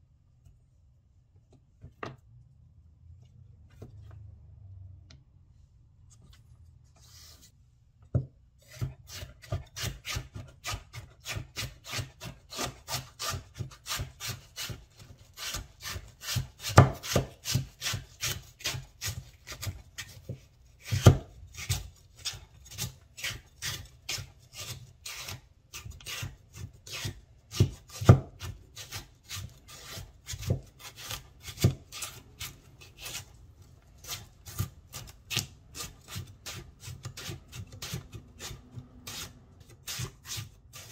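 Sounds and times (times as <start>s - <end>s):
cleaver slicing on wooden board: 8.6s - 14.8s, 15.4s - 33.4s, 34.0s - 40.9s.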